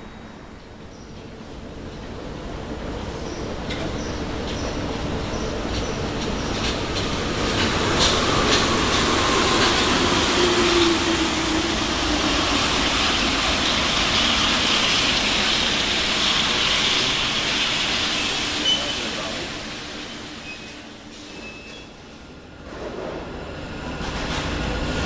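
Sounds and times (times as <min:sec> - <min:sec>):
metro train rumble and hiss: 0:00.0 - 0:25.0
sharp clicks of approaching train: 0:03.2 - 0:12.0, 0:22.6 - 0:25.0.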